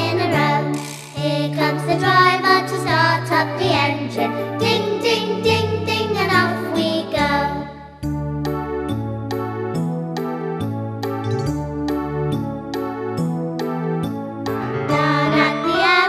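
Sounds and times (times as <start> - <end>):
instrumental backing with bass: 0.0 - 16.0
children singing in unison: 14.9 - 16.0.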